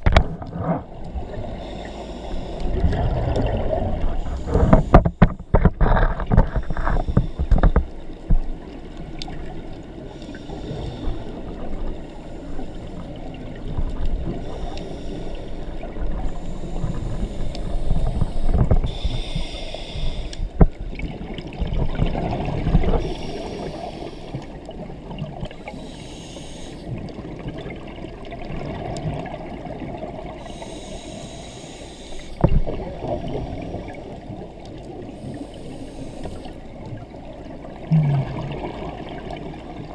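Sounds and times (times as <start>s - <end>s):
regulator breathing hiss: 1.5s - 2.7s, 10.1s - 11.4s, 14.4s - 20.6s, 23.0s - 24.6s, 25.5s - 27.0s, 30.4s - 32.4s, 35.0s - 36.6s
exhaled air bubbling: 2.5s - 7.8s, 32.2s - 39.9s.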